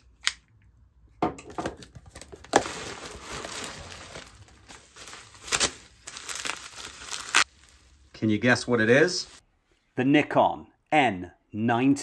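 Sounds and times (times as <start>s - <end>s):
bubble wrap crinkling: 2.1s - 9.4s.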